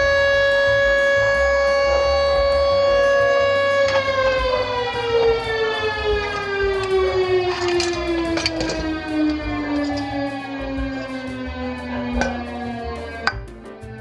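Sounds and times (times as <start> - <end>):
siren-like tone sliding down: 0.0 - 13.2.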